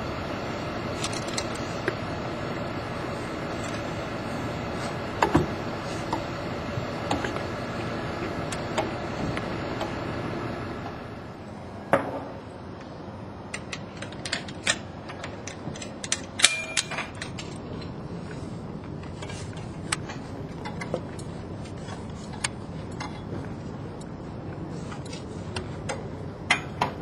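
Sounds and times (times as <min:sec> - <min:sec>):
steady background noise: 0:00.0 - 0:27.0
metal carabiners clicking and clinking: 0:15.4 - 0:17.9.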